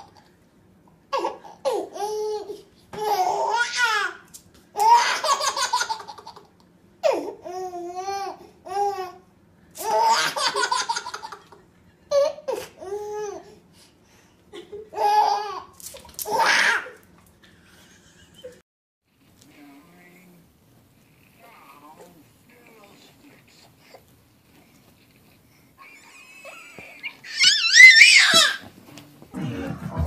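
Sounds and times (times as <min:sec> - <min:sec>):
baby laughing: 0:04.8 - 0:09.0, 0:09.8 - 0:13.4, 0:14.8 - 0:17.0, 0:25.8 - 0:28.6.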